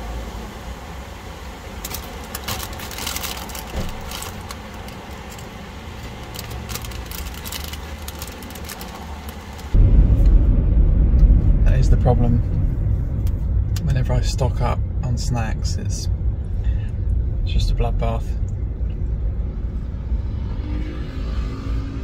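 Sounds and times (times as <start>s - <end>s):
low rumble inside car: 0.0s - 22.0s
chip bag crinkling: 1.8s - 9.8s
chips crunching: 1.8s - 9.8s.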